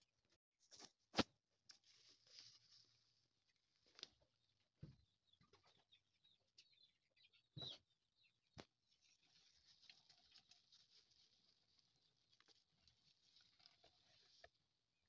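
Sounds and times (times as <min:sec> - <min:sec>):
fingers rustling in soil and plastic: 0:00.6 - 0:04.4, 0:08.6 - 0:14.8.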